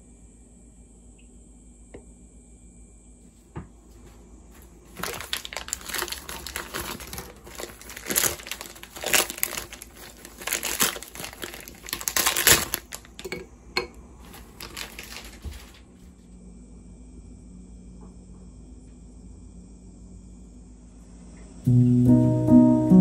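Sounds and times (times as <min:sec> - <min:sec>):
plastic bag crinkling: 0:04.5 - 0:13.4, 0:14.2 - 0:15.9.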